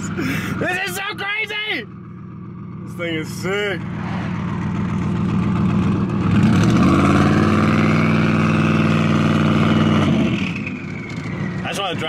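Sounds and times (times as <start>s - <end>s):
truck engine revving from inside cab: 6.2s - 11.3s.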